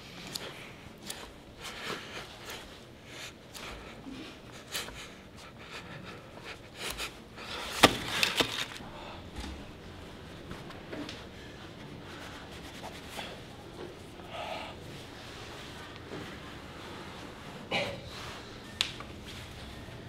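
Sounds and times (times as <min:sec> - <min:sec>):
paper ball rustling: 0:07.5 - 0:08.8.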